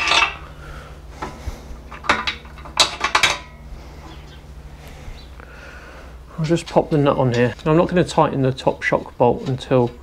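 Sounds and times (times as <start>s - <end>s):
metal bolt clinking: 0.0s - 0.5s, 1.9s - 3.6s.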